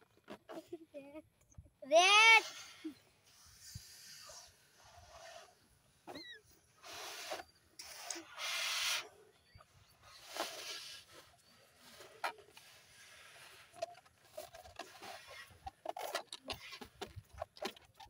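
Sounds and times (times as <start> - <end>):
breathy puffs into balloons: 2.3 - 15.9.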